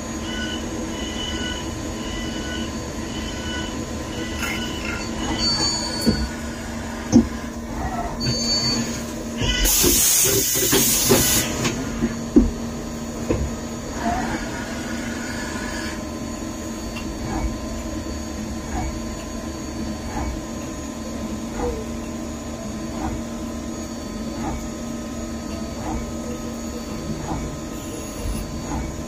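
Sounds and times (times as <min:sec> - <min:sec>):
faint short squeaks: 0:00.3 - 0:06.4, 0:07.8 - 0:09.7
machine hissing: 0:09.4 - 0:12.0.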